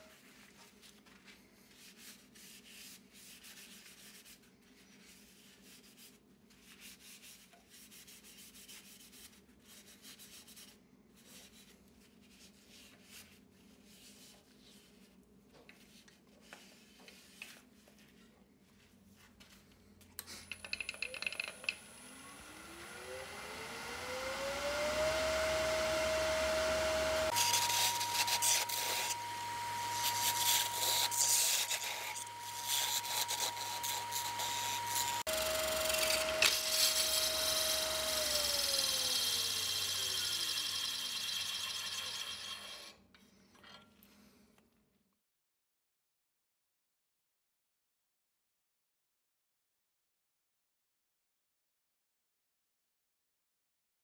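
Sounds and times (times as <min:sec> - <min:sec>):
lathe motor whine: 0:21.6 - 0:42.9
parting tool scraping wood: 0:27.3 - 0:38.4.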